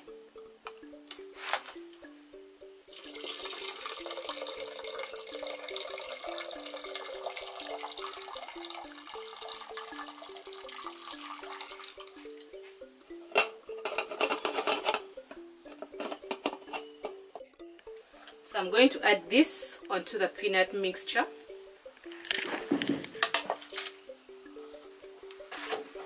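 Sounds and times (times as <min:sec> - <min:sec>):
background music: 0:00.0 - 0:26.0
metal pots clinking: 0:02.9 - 0:12.1, 0:13.2 - 0:15.1, 0:15.7 - 0:17.5
liquid pouring through strainer: 0:02.9 - 0:12.2.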